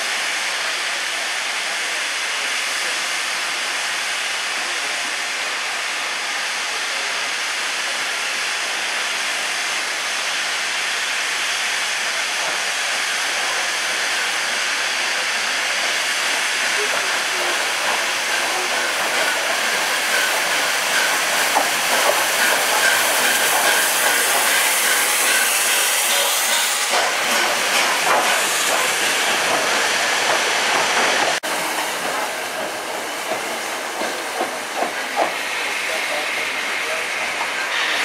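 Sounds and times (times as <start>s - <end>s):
steam hissing from locomotive: 0.0s - 38.0s.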